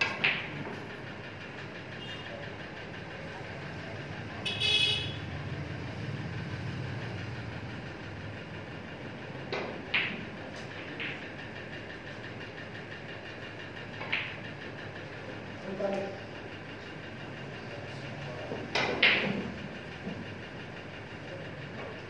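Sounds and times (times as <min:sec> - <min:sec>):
snooker balls clicking: 0:00.0 - 0:03.0, 0:08.1 - 0:17.1, 0:18.1 - 0:22.0
low background hum: 0:00.0 - 0:22.0
vehicle horn toot: 0:04.5 - 0:05.2.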